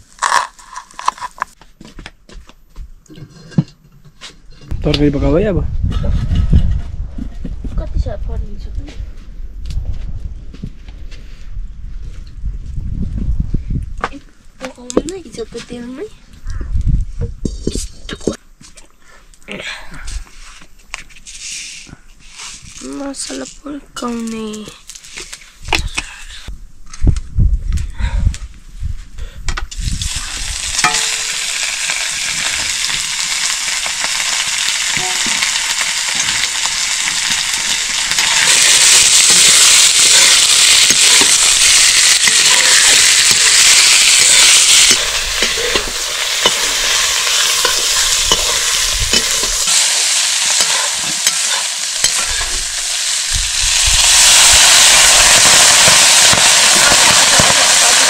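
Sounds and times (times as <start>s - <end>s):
spices sizzling in hot oil: 29.8s - 58.0s
spoon scraping pan: 44.4s - 52.6s.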